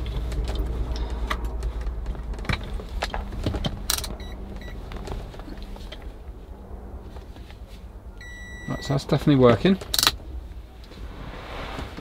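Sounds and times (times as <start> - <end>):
low rumble: 0.0 - 12.0
short electronic beeps: 8.2 - 8.9.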